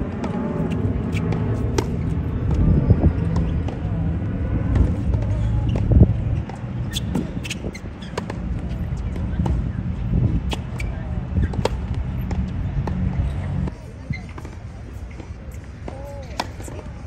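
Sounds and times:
steady low rumble: 0.0 - 15.9
racket hitting tennis ball: 0.2 - 2.6, 4.7 - 9.8, 10.4 - 13.2, 14.3 - 16.8.

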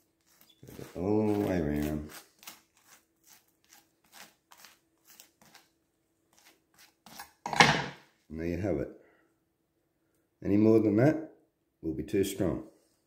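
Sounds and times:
knife scraping spread across toast: 0.0 - 5.7, 6.3 - 7.4.

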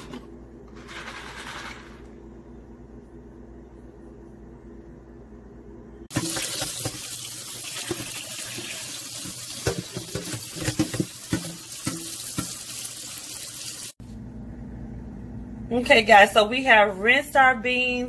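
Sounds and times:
low steady hum: 0.0 - 6.1, 14.0 - 18.0
tap water running into colander: 6.1 - 14.0
knocks and splashes: 9.2 - 12.7.

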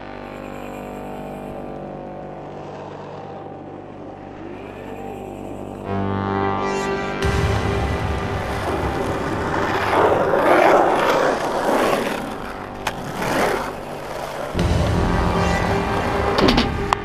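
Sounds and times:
skateboard wheels rolling on concrete: 7.2 - 17.0.

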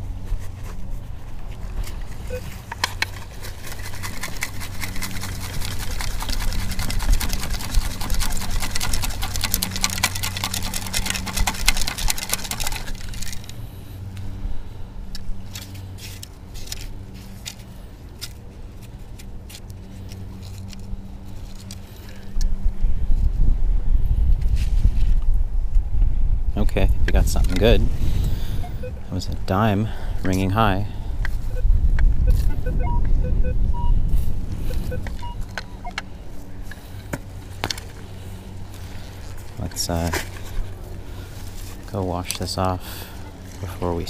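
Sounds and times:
steady low hum: 0.0 - 44.0
scattered clicks: 2.3 - 14.2
sand and pebbles rattling in scoop: 2.9 - 13.5, 38.9 - 40.6.

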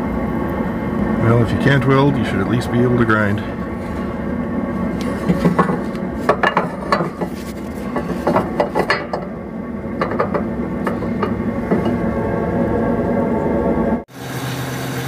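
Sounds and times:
metal bracket clinking and scraping: 5.0 - 9.4.

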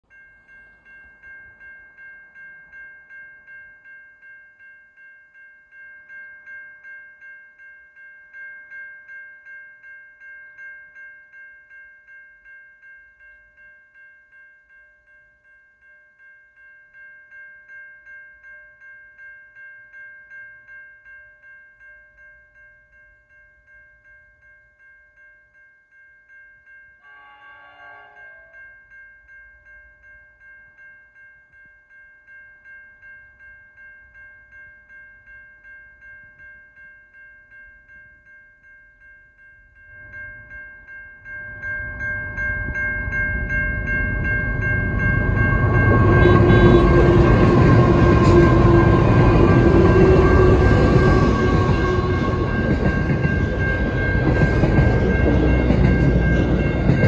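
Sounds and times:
level crossing warning bell: 0.1 - 57.0
locomotive horn: 27.0 - 28.6, 45.9 - 52.6.

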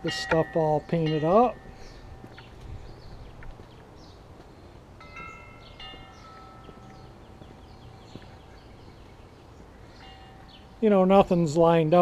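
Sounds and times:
clear ringing tones: 0.0 - 2.5, 5.0 - 7.3
birds chirping: 0.0 - 12.0.

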